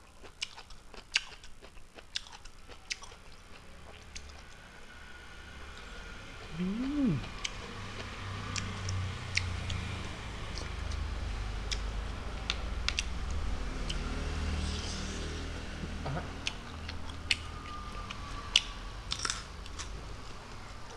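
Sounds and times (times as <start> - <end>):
chewing with mouth clicks: 0.0 - 4.6, 12.5 - 14.0, 16.4 - 20.9
man humming: 6.4 - 7.3.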